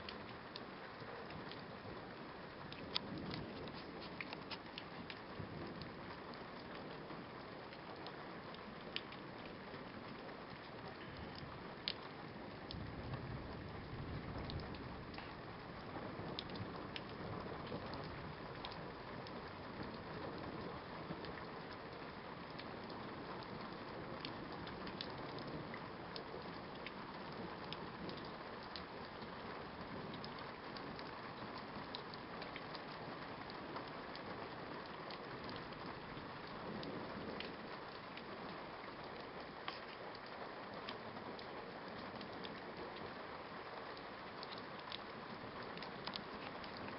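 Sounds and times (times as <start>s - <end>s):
steady rain falling: 0.0s - 46.9s.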